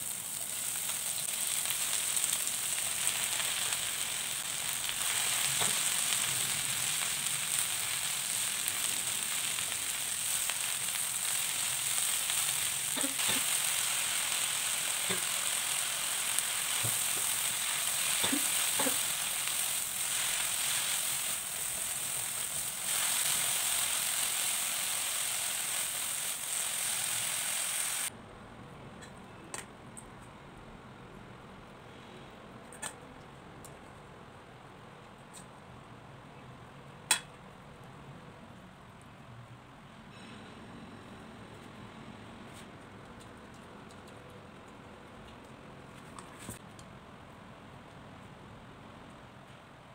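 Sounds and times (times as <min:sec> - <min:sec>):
vegetables sizzling in a pan: 0:00.0 - 0:28.1.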